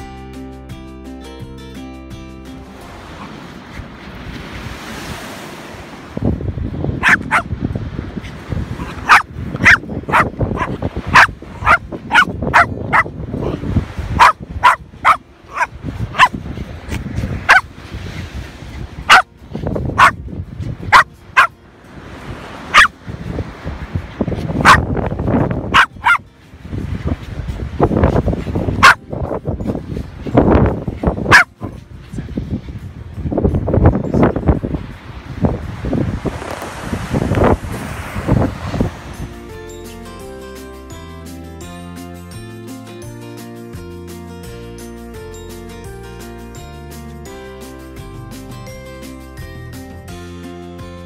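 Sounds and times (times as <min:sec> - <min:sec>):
dog barking: 0:07.0 - 0:07.5, 0:08.8 - 0:13.1, 0:14.2 - 0:16.4, 0:17.5 - 0:17.7, 0:19.1 - 0:19.3, 0:20.0 - 0:20.2, 0:20.9 - 0:21.6, 0:22.7 - 0:22.9, 0:24.6 - 0:24.8, 0:25.7 - 0:26.2, 0:28.8 - 0:29.0, 0:31.3 - 0:31.7.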